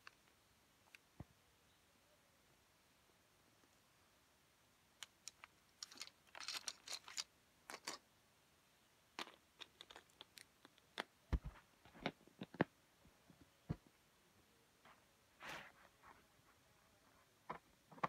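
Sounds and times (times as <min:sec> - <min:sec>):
rustling: 0:05.0 - 0:08.0, 0:09.2 - 0:14.0.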